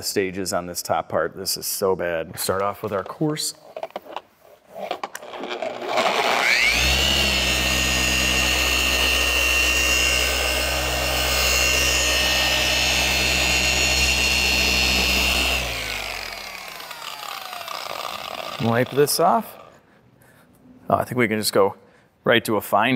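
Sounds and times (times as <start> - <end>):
orbital polisher whining: 5.8 - 19.8.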